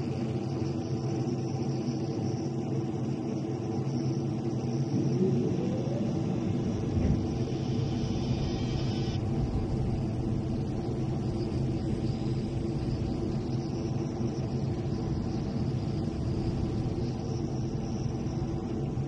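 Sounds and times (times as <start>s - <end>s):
jet engine drone: 0.0s - 19.0s
high hiss: 6.6s - 19.0s.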